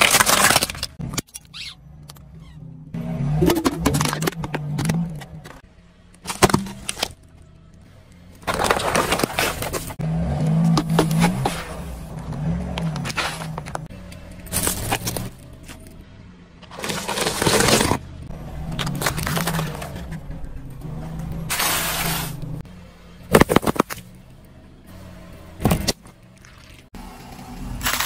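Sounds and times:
plastic bottles crunching: 0.0 - 1.0, 8.4 - 10.0, 16.7 - 18.0.

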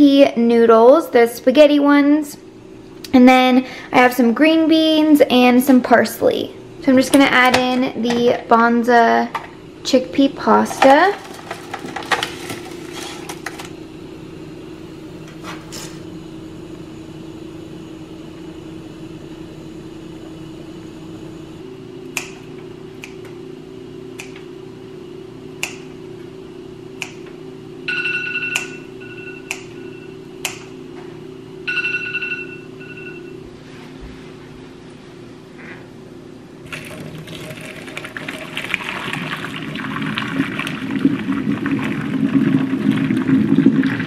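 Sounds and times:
steady low hum: 0.0 - 44.0
high-pitched ringing tone: 27.8 - 33.5.

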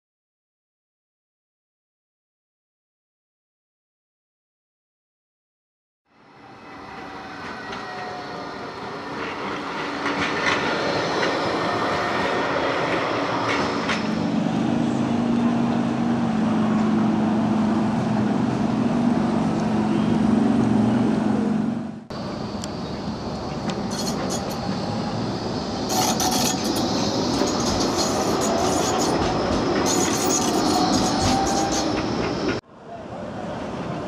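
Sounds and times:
tram motor hum: 6.4 - 32.6
tram wheels clicking on rails: 9.1 - 14.6, 22.3 - 32.6.

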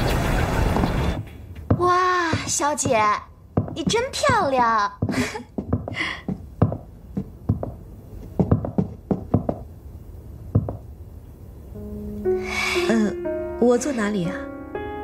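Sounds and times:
footsteps on wooden floor: 0.8 - 9.7, 10.5 - 10.9.

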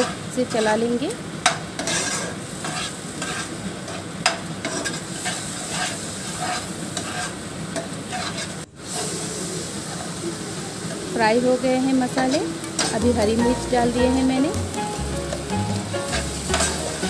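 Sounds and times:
spices sizzling in oil: 0.0 - 17.0
spatula scraping pan: 1.5 - 9.1, 15.3 - 17.0.

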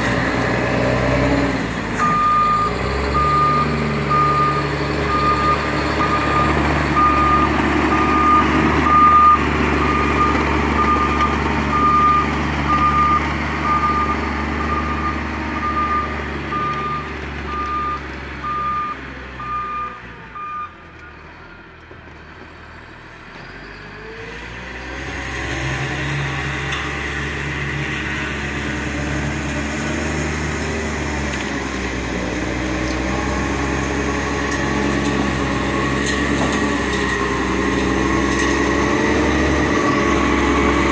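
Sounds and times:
reversing alarm beeping: 2.0 - 20.7
snow groomer engine running: 25.4 - 40.9.

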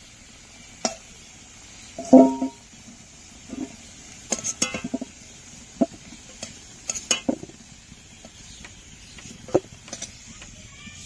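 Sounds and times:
metal utensil clinking against wok: 2.0 - 2.6, 4.3 - 5.0, 6.4 - 7.4.

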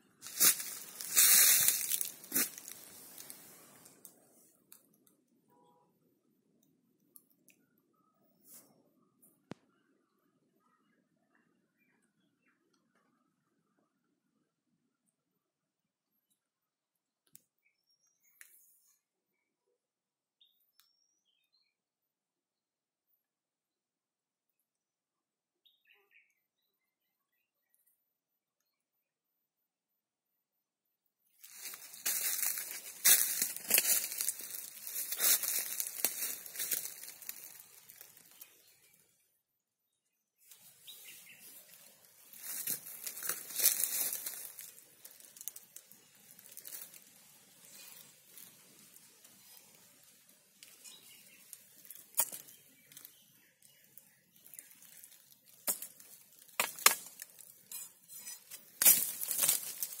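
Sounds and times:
crinkly rustling and crackling: 0.2 - 5.0, 31.4 - 39.0, 40.5 - 60.0.

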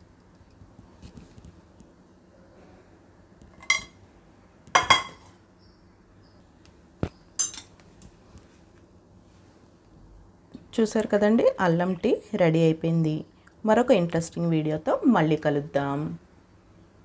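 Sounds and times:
steel utensils clinking: 7.4 - 7.7.

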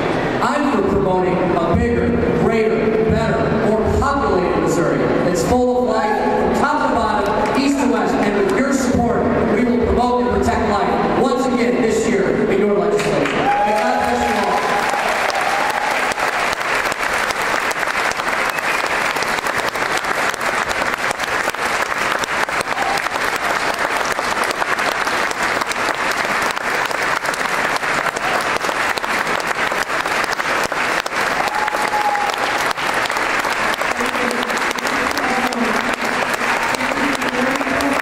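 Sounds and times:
crowd applauding: 13.0 - 38.0.

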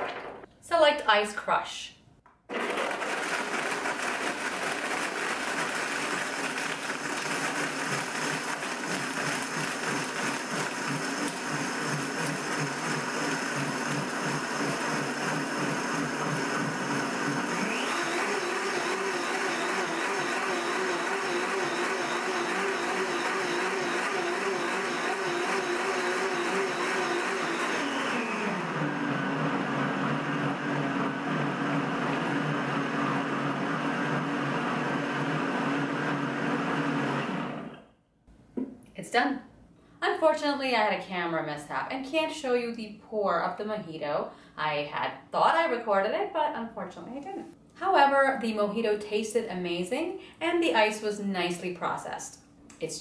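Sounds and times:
blender crushing ice: 2.5 - 37.8.

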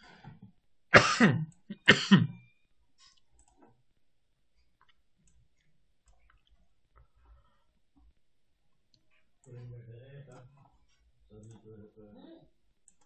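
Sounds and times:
man coughing: 1.0 - 2.4
computer mouse clicks: 3.0 - 3.8.

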